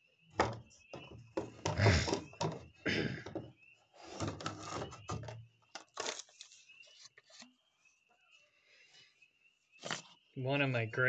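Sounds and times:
handling rustles scrapes and knocks: 0:00.4 - 0:07.6.

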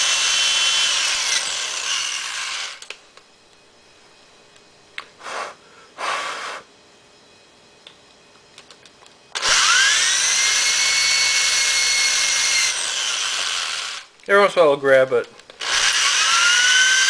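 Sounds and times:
electric drill whine: 0:00.0 - 0:03.0, 0:09.3 - 0:14.1, 0:15.5 - 0:17.0.

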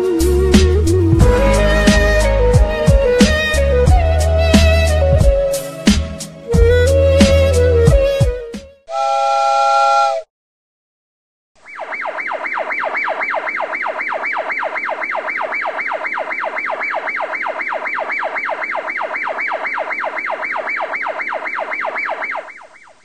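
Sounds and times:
electronic toy siren yelping: 0:11.6 - 0:23.0.

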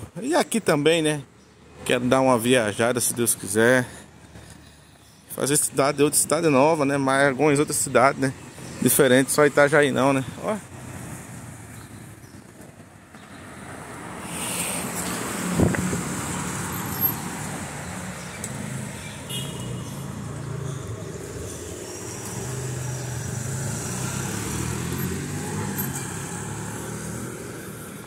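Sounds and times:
cars passing: 0:00.0 - 0:28.0
car engines running: 0:07.2 - 0:28.0.

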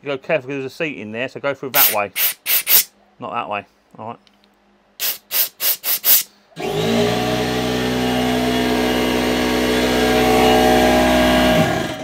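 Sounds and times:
air compressor running: 0:01.8 - 0:02.9, 0:05.0 - 0:12.0
compressed air blasts: 0:01.8 - 0:02.9, 0:05.0 - 0:06.3.

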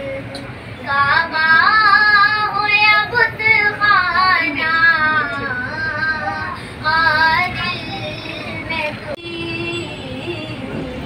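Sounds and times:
high voice singing devotional song: 0:00.0 - 0:11.0.

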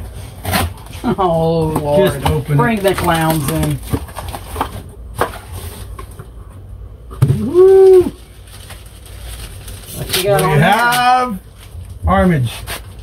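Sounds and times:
plastic packaging rustling: 0:01.8 - 0:06.2, 0:08.2 - 0:12.0
person shouting woo: 0:07.3 - 0:08.2.

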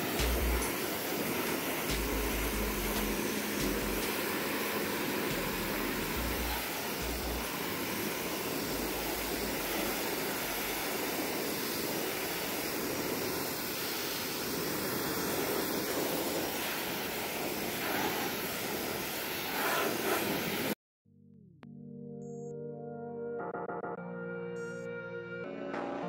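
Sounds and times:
pressure washer spray hiss: 0:00.0 - 0:20.8.

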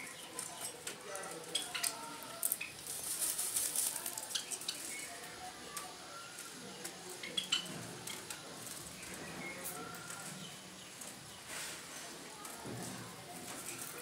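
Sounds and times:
scratchy rustle: 0:02.4 - 0:05.0.

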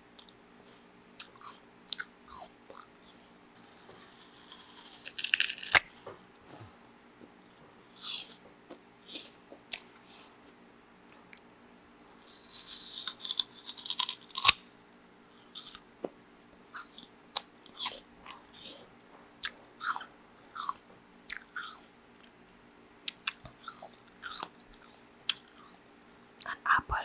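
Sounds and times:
crunchy apple bite: 0:03.6 - 0:06.0, 0:12.1 - 0:14.6, 0:15.4 - 0:15.8, 0:19.4 - 0:21.8, 0:23.0 - 0:25.8
wet crunches of chewing: 0:04.5 - 0:05.9, 0:12.2 - 0:14.6, 0:15.4 - 0:15.8, 0:19.4 - 0:25.8.

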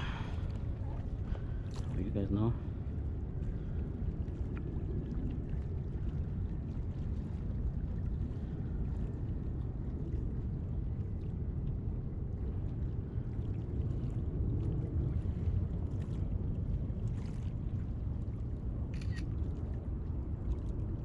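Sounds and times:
wind buffeting microphone: 0:00.0 - 0:21.0
faint small clicks: 0:18.9 - 0:19.3.

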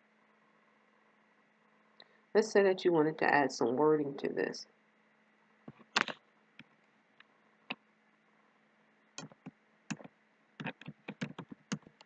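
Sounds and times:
faint steady hum: 0:00.0 - 0:12.0
keyboard key taps: 0:09.2 - 0:12.0.

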